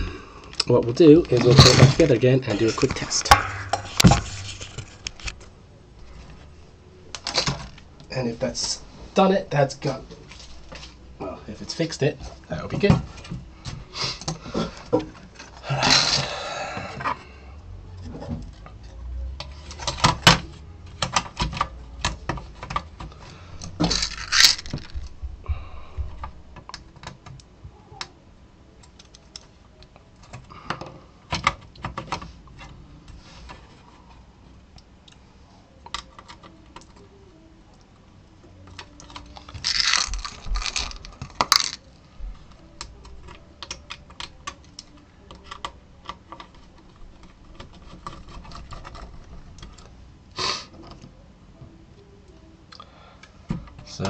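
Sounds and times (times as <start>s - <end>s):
small metal screws rattling: 23.8s - 25.1s, 39.5s - 41.8s.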